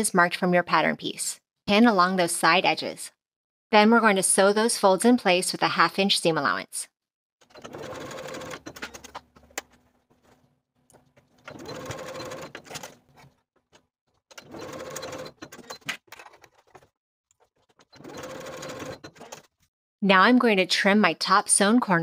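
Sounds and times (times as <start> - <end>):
sewing machine stitching: 7.4 - 9.6, 11.2 - 13.4, 14.2 - 19.6.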